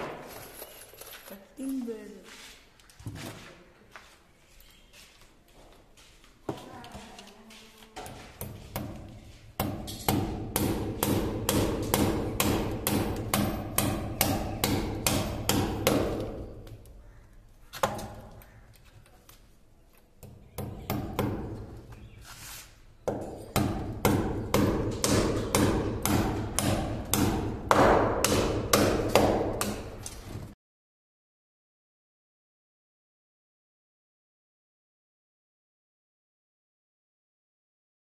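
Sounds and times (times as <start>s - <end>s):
hammer striking a nail: 8.4s - 16.5s, 20.2s - 21.6s, 23.1s - 30.0s.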